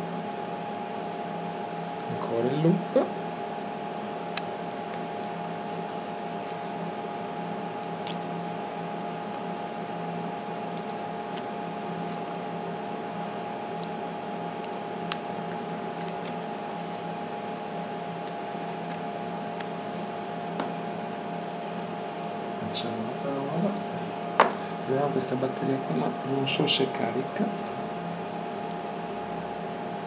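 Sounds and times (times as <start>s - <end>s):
steady mechanical hum: 0.0s - 30.0s.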